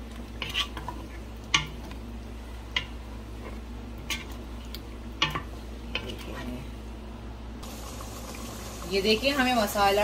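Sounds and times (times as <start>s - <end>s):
wooden spoon stirring: 0.0s - 6.7s
steady low hum: 0.0s - 10.0s.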